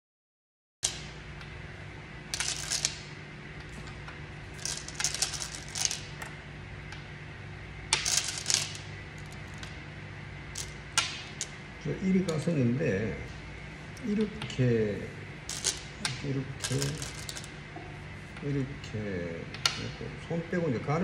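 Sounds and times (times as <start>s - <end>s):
steady low hum: 0.8s - 21.0s
go stones clicking: 10.6s - 11.6s, 15.5s - 17.5s.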